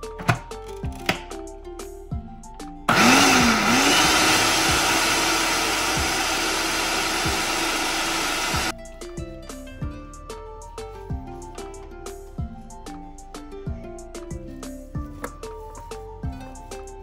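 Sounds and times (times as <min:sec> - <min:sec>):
food processor chopping: 0:02.9 - 0:08.7.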